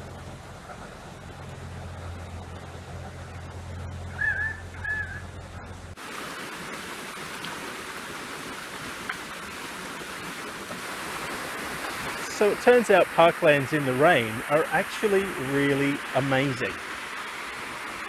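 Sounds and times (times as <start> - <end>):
steady low hum: 0.0 - 6.0
water flowing down stone steps: 5.9 - 18.0.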